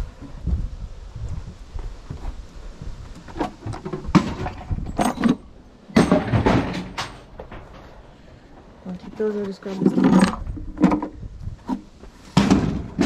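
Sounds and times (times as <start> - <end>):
drawers knocking and scraping: 3.3 - 8.0, 9.7 - 13.0.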